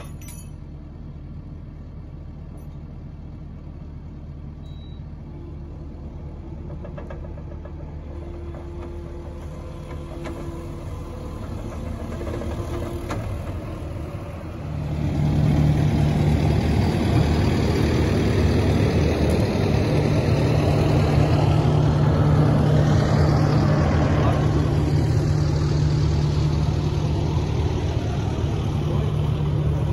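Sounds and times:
diesel engine running: 0:00.0 - 0:29.9
loud diesel engine idling: 0:00.0 - 0:29.9.

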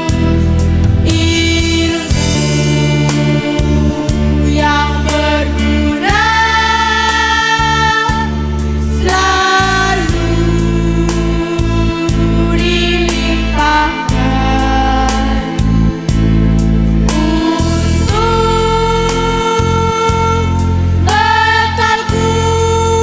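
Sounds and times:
instrumental backing: 0:00.0 - 0:23.0
girls' choir singing: 0:01.2 - 0:08.3, 0:09.0 - 0:14.2, 0:21.0 - 0:22.7.

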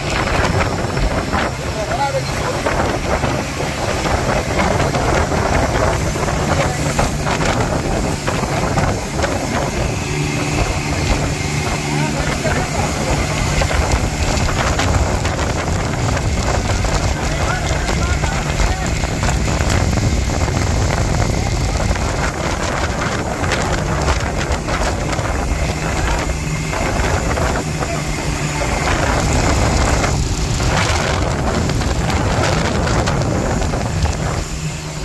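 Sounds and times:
boat engine running: 0:00.0 - 0:35.0
rough sea against hull: 0:00.0 - 0:35.0
wind rumbling on microphone: 0:00.0 - 0:35.0.

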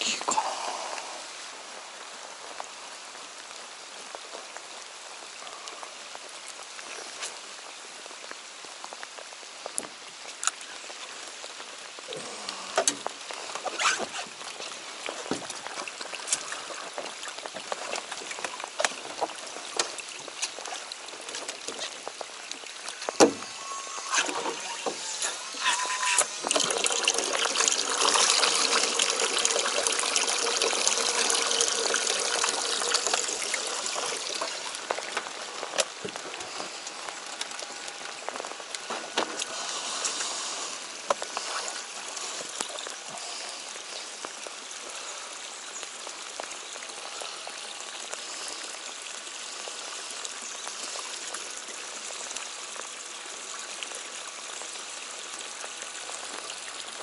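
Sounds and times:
rain hissing on water: 0:00.0 - 0:57.0
water pouring into a cooler: 0:12.0 - 0:57.0.

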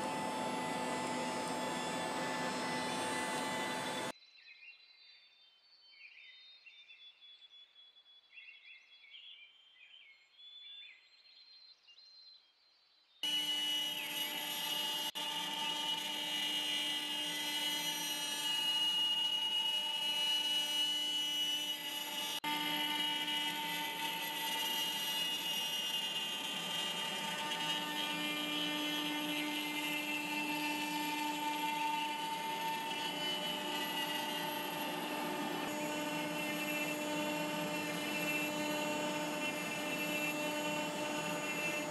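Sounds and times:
cnc router spindle whine: 0:00.0 - 0:04.1, 0:13.2 - 0:41.9
router milling wood: 0:00.0 - 0:04.1, 0:13.2 - 0:41.9.

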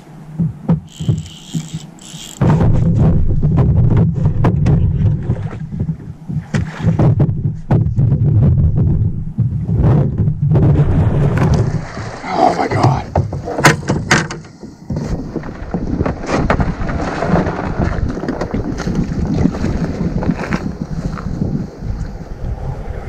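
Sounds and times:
knocks on plastic boat: 0:02.4 - 0:10.8
wind buffeting microphone: 0:13.1 - 0:23.0.

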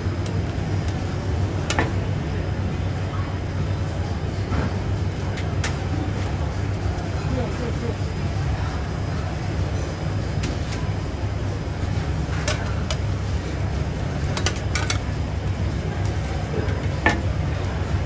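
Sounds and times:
wok stove roaring: 0:00.0 - 0:18.0
utensils clinking against wok: 0:14.2 - 0:15.1.

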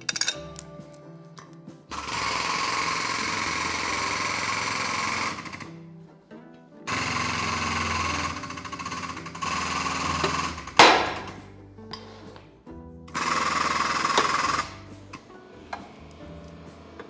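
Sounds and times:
hydraulic pump chattering: 0:01.9 - 0:05.7, 0:06.9 - 0:11.4, 0:13.1 - 0:16.2.

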